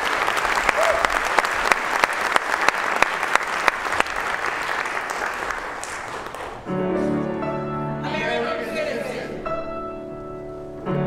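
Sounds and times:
audience applause: 0.0s - 6.7s.

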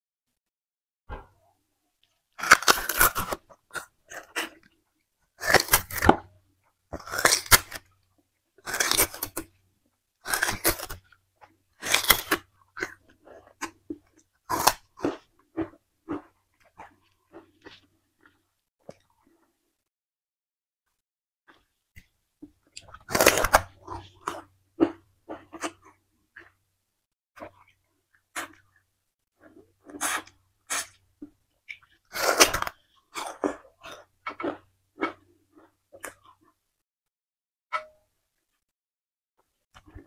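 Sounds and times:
sugarcane crunching when chewed: 2.4s - 4.7s, 5.4s - 6.3s, 6.9s - 7.9s, 8.6s - 9.6s, 10.2s - 19.0s, 22.7s - 26.6s, 31.6s - 36.6s.

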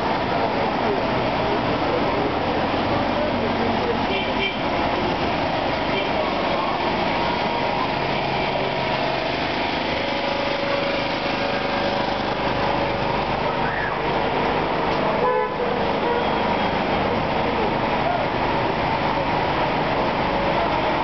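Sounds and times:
diesel generators humming: 0.0s - 21.0s
street traffic: 0.0s - 21.0s
car horn toot: 15.2s - 16.4s.

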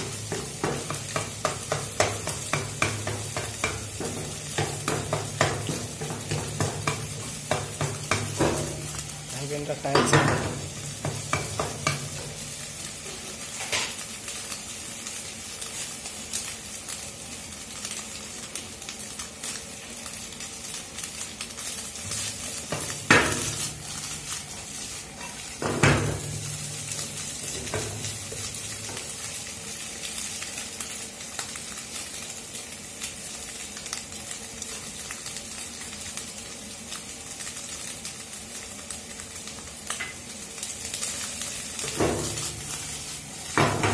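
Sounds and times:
egg sizzling in frying pan: 0.0s - 43.9s
pan clattering: 43.4s - 43.9s.

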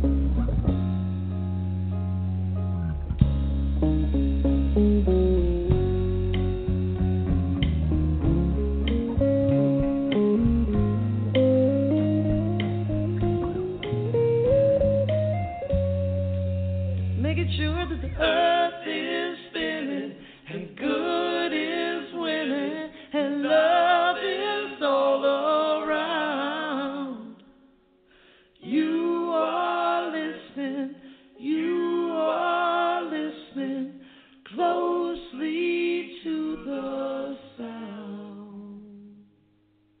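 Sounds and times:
low held bass note: 0.0s - 18.2s
person singing: 17.1s - 27.4s, 28.6s - 33.9s.

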